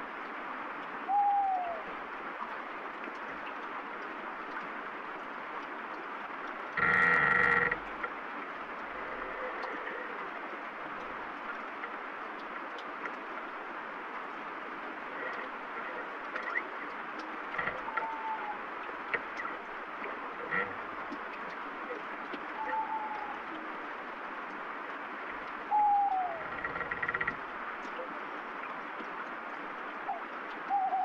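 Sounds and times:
rain falling: 0.0s - 31.0s
tree branch creaking: 6.8s - 8.1s, 15.1s - 16.6s, 17.5s - 18.5s, 20.4s - 20.8s, 26.3s - 27.5s.

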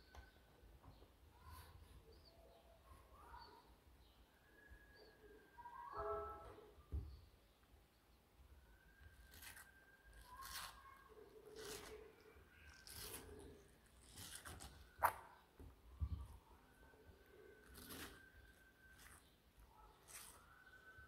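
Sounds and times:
tortoise crunching watermelon: 9.1s - 15.1s, 17.5s - 20.9s.

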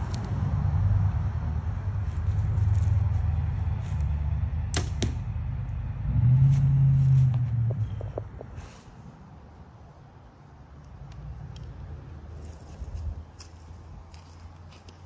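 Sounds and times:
arrow striking target: 4.6s - 5.4s.

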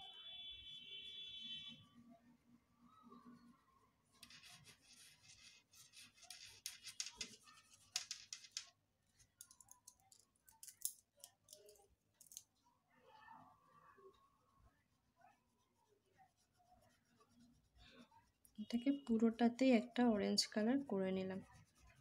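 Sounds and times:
oil pastel scratching on paper: 4.2s - 8.0s, 14.9s - 22.0s.

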